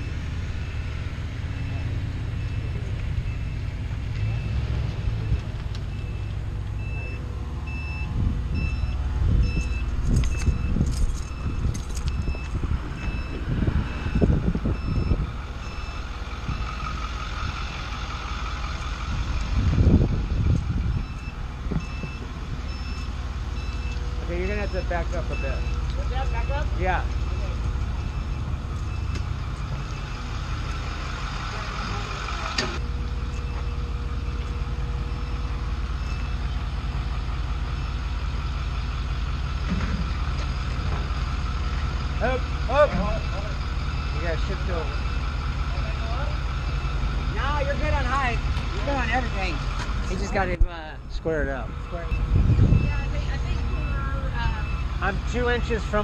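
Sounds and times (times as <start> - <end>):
forklift reversing alarm beeping: 0.0 - 19.0, 19.8 - 48.4, 51.8 - 56.0
low rumble: 0.0 - 23.9, 49.6 - 54.9
vehicle engine noise: 0.0 - 56.0.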